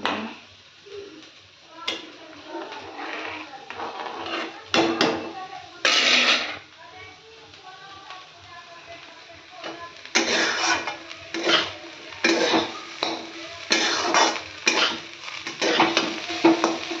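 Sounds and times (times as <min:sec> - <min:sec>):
spoon scraping a metal pan: 0:01.9 - 0:06.7, 0:09.6 - 0:17.0.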